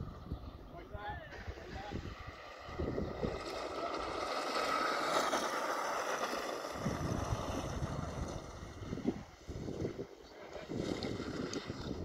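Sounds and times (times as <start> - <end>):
wind buffeting microphone: 0.0 - 12.0
kart engine passing: 1.3 - 12.0.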